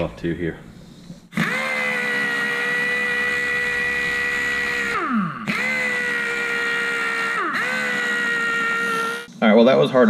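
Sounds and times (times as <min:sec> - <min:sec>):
air impact gun whining: 0:01.3 - 0:09.3.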